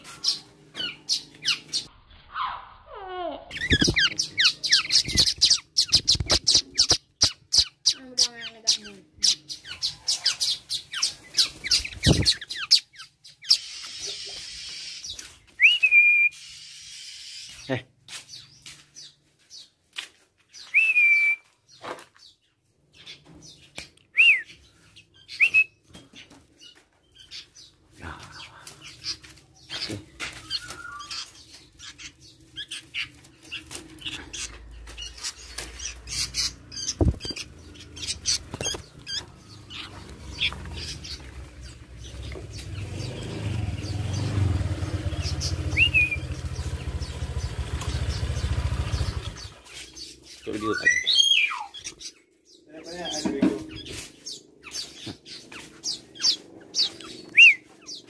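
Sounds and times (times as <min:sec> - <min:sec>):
songbirds chirping: 0:00.0 - 0:58.0
bird flapping wings: 0:36.9 - 0:37.5, 0:38.2 - 0:39.2.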